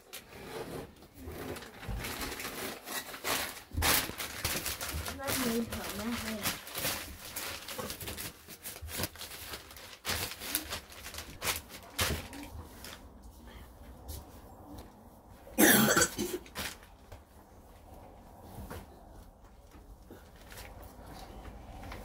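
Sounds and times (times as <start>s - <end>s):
newspaper rustling: 1.1s - 13.3s, 16.5s - 17.3s
person coughing: 15.6s - 16.5s.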